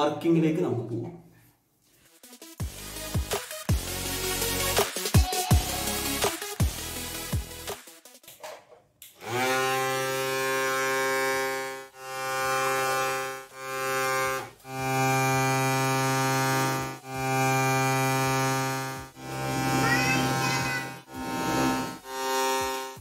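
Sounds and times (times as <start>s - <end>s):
small motor buzzing hum: 9.2s - 23.0s.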